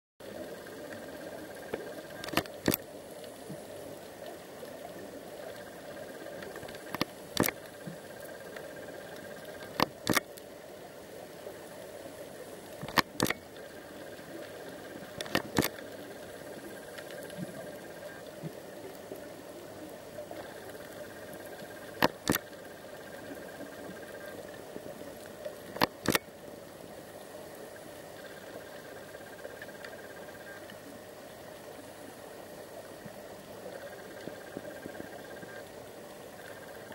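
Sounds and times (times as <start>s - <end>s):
underwater hiss and hum: 0.2s - 36.9s
sharp clicks: 1.7s - 2.8s, 6.4s - 7.7s, 9.6s - 10.4s, 12.8s - 13.4s, 15.2s - 15.8s, 22.0s - 22.6s, 25.7s - 26.3s.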